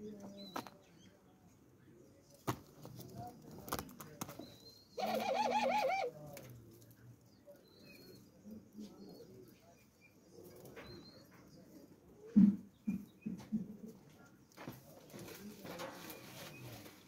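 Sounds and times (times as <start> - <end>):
doves cooing: 5.0 - 6.2.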